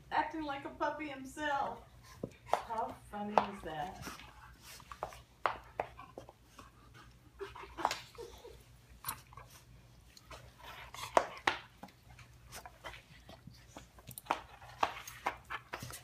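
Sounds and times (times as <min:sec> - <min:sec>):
dogs play-biting clicks and rustles: 0:01.9 - 0:16.0.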